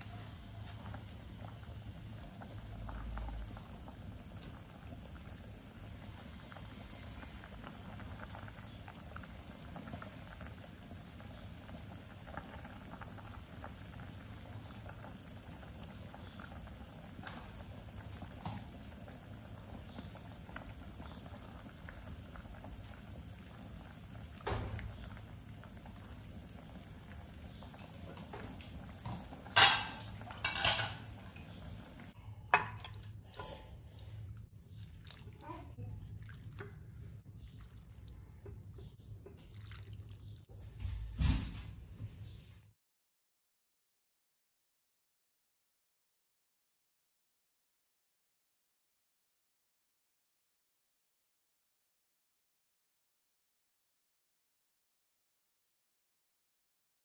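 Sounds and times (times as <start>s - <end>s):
soup bubbling in a pot: 0.0s - 40.6s.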